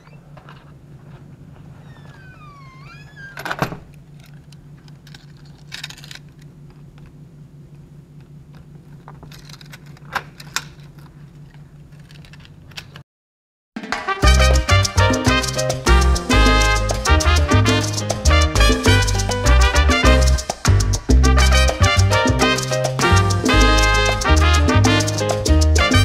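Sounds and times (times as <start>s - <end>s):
door creaking and shutting: 0.0s - 0.7s, 1.8s - 4.5s.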